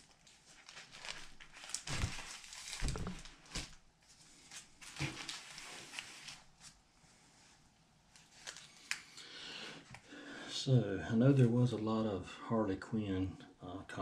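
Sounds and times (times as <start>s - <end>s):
paper rustling and sliding: 0.2s - 6.8s
comic books thumping on cardboard: 1.8s - 3.8s.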